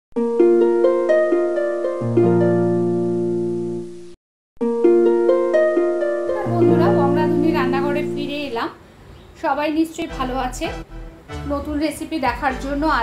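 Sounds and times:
held low chord: 0:00.4 - 0:08.5.

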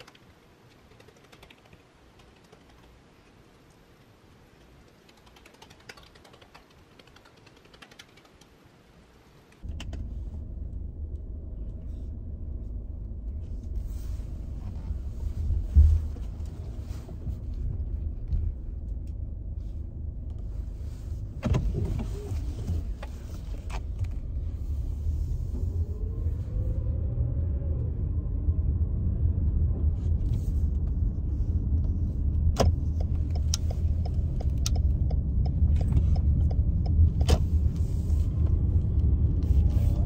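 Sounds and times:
car cabin rumble: 0:09.6 - 0:27.0, 0:29.3 - 0:40.0.

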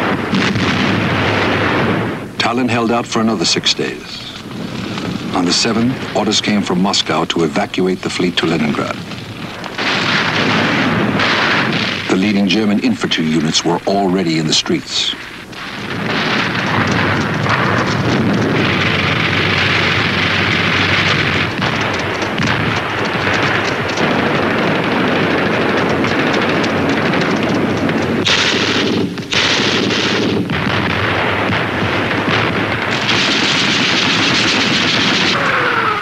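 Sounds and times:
rifle and machine-gun fire: 0:00.0 - 0:36.0.

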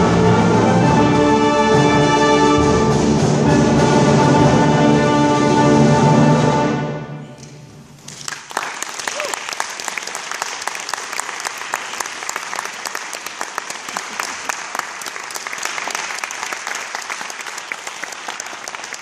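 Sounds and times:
audience applauding: 0:08.0 - 0:19.0.

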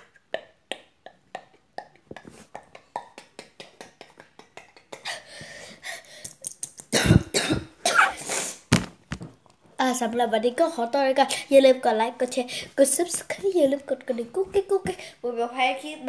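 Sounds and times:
beatboxing mouth clicks and pops: 0:00.0 - 0:04.9, 0:06.2 - 0:07.0.

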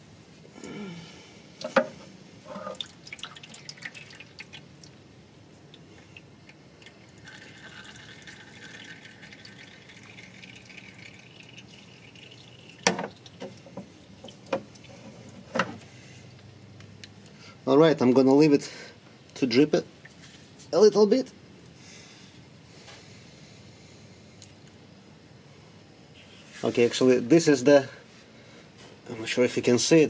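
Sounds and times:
fluid dripping into a pan: 0:02.6 - 0:05.0, 0:05.7 - 0:15.0.

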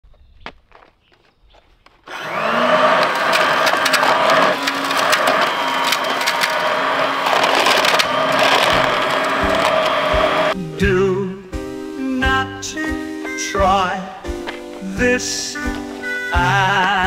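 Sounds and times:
vacuum cleaner motor whine: 0:02.1 - 0:10.6.

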